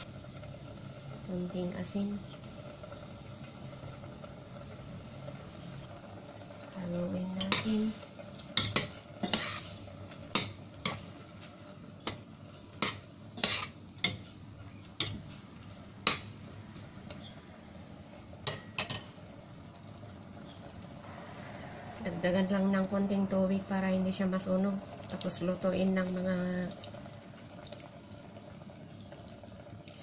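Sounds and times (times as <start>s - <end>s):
metal spoon scraping a pot: 7.4s - 11.1s, 12.8s - 14.2s.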